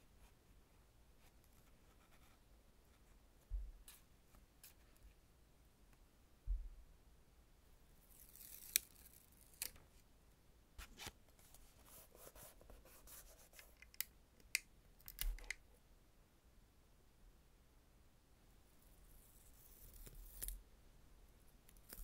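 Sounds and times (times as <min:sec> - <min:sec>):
small thump: 0:06.4 - 0:06.8.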